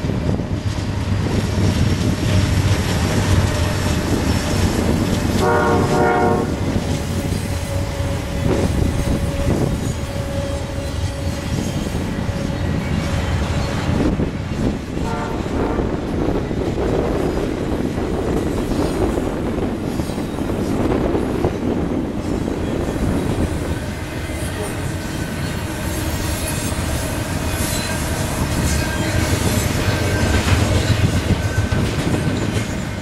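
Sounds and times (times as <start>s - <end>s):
freight train rumbling and rattling: 0.0s - 33.0s
wind buffeting microphone: 0.0s - 33.0s.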